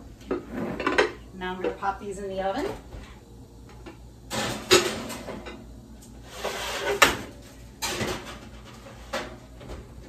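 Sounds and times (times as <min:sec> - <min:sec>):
metal rack and dishes clatter: 0:04.3 - 0:05.6, 0:06.2 - 0:09.8.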